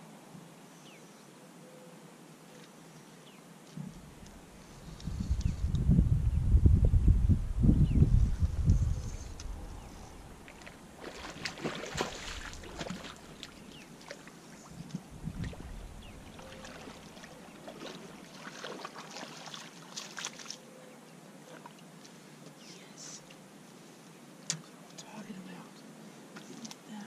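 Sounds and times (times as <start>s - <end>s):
water splashing and sloshing: 9.3s - 20.8s, 21.4s - 22.2s
sharp splashes and clicks: 10.4s - 20.6s.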